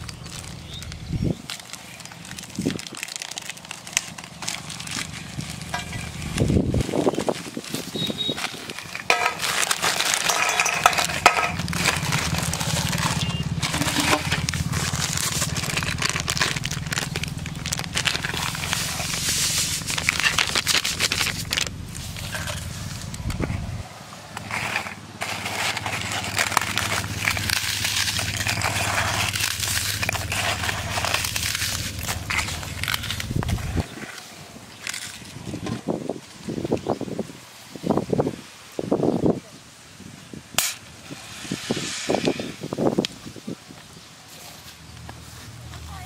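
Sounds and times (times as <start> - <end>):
dry biscuits crushed by hand: 0.0 - 23.6, 24.3 - 34.0
plastic packets crinkling: 0.0 - 23.6, 24.3 - 34.2.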